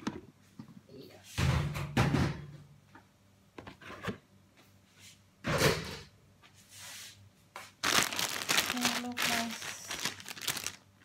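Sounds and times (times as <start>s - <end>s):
plastic bags rustling: 7.7s - 11.0s.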